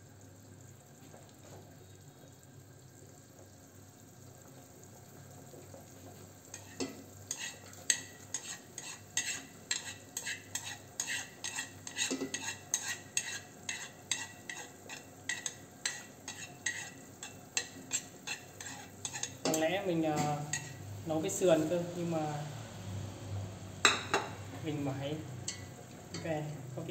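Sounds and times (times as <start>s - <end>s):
chopsticks scraping and tapping plate: 6.6s - 20.8s.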